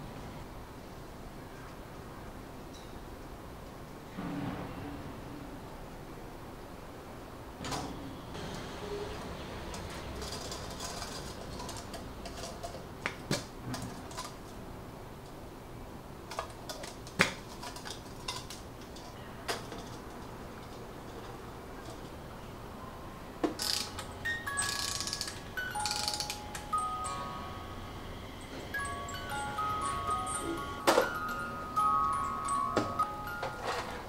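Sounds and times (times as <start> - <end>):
metal tins clicking and clinking: 9.7 - 12.9.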